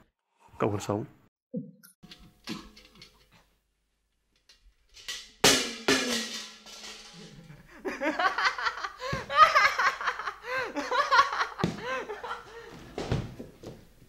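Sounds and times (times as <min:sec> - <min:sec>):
man laughing loudly: 0:07.5 - 0:12.5.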